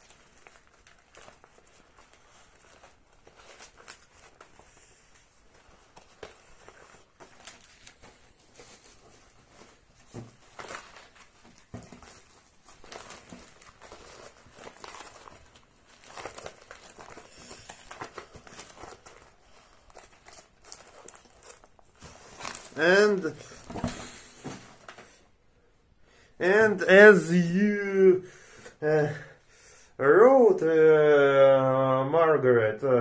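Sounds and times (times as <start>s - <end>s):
paper and plastic folder rustling: 0.0s - 25.2s.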